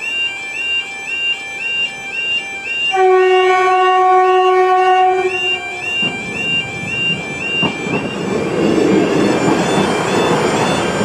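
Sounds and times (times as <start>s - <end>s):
level crossing alarm warbling: 0.0s - 11.0s
train horn: 2.8s - 8.2s
train rumbling: 2.8s - 11.0s.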